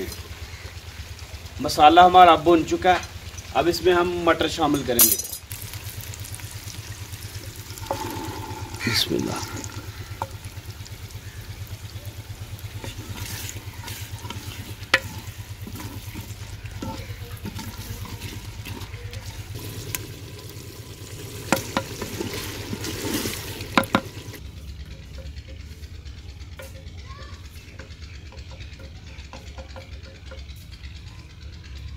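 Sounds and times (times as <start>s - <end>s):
soft sizzle: 0.0s - 30.9s
steady low hum: 5.1s - 31.9s
spoon knocking on clay pot: 23.8s - 24.1s.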